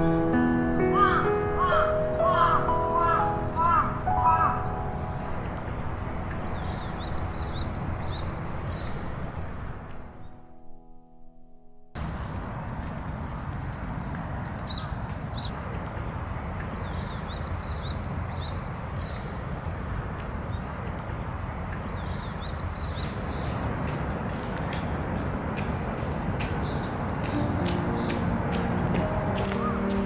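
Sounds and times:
low outdoor background noise: 0.0 - 10.6, 12.0 - 30.0
small birds chirping: 6.2 - 10.4, 13.7 - 15.5, 21.5 - 30.0.

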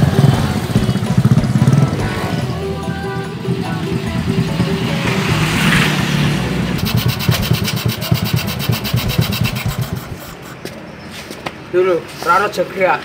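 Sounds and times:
motorcycle engine putter: 6.8 - 10.7.

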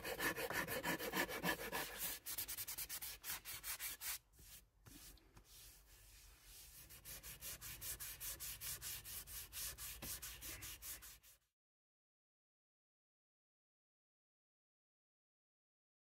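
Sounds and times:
sandpaper scraping on wood: 0.0 - 11.4.

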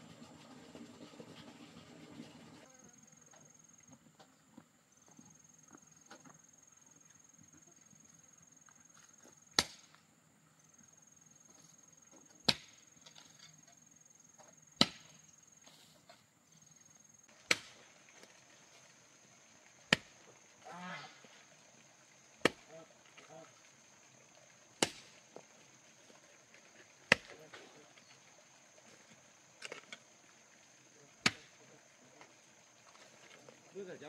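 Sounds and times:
hoe chopping into dry earth: 9.5 - 10.0, 12.4 - 12.8, 14.8 - 15.2, 17.3 - 18.0, 19.9 - 20.2, 22.4 - 22.7, 24.8 - 25.2, 27.0 - 27.7, 31.2 - 31.5.

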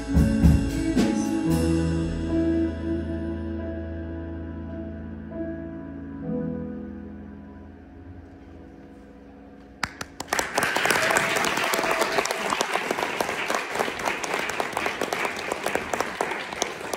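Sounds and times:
audience applause: 9.8 - 16.9.

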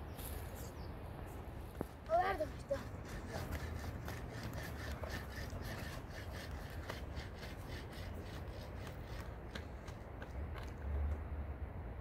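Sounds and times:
rhythmic scraping strokes: 2.3 - 9.4.

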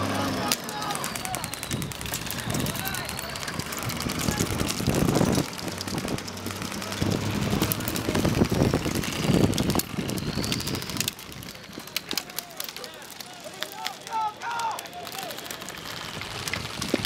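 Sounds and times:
vehicle engine running: 0.0 - 13.6
sharp clicks: 0.0 - 17.0.

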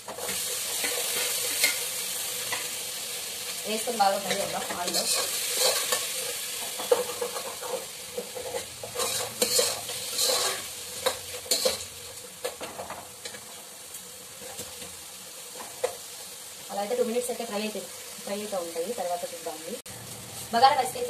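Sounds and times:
vegetables sizzling in oil: 0.0 - 21.0
metal spoon scraping pot: 4.3 - 6.1, 6.8 - 11.8.

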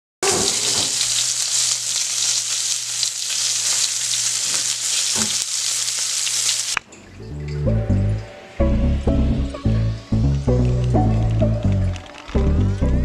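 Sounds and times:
meat sizzling in a frying pan: 0.2 - 6.8.

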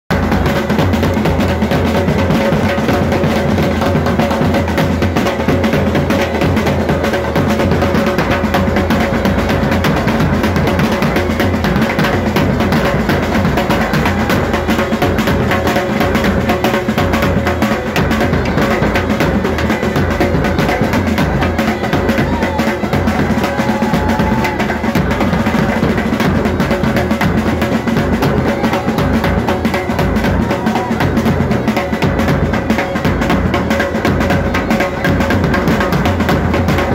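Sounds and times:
band playing drum-heavy dance music: 0.1 - 36.9.

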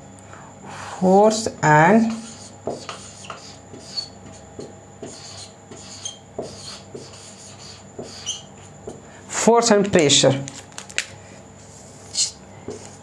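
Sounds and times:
marker pen writing on whiteboard: 1.9 - 9.0, 11.6 - 13.0
marker squeaks: 2.1 - 8.7, 12.0 - 12.9.

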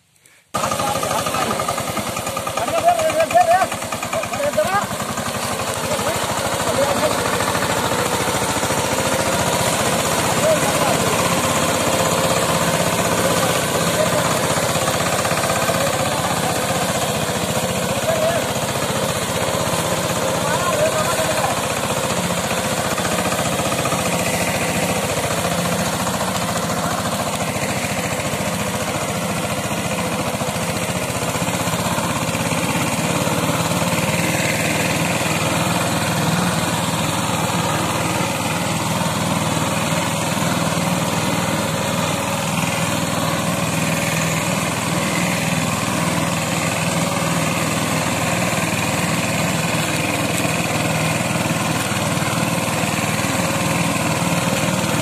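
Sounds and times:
tractor diesel engine running: 0.2 - 55.0.

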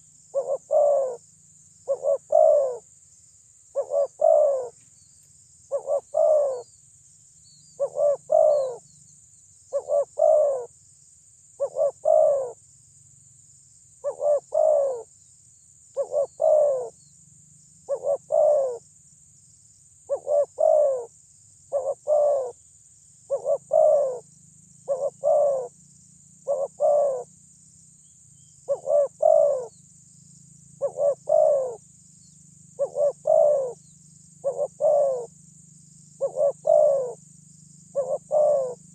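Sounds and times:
dove cooing: 0.0 - 1.2, 1.8 - 2.9, 3.7 - 4.8, 5.7 - 6.7, 7.8 - 8.8, 9.7 - 10.7, 11.6 - 12.6, 14.0 - 15.1, 16.0 - 17.0, 17.9 - 18.8, 20.1 - 21.1, 21.7 - 22.6, 23.3 - 25.8, 26.4 - 27.3, 28.6 - 29.7, 30.8 - 31.8, 32.7 - 33.8, 34.4 - 35.4, 36.2 - 37.2, 37.9 - 38.9.

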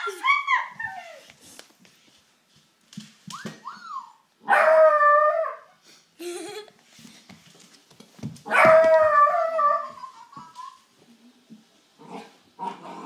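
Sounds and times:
puppy howling: 8.5 - 10.1.

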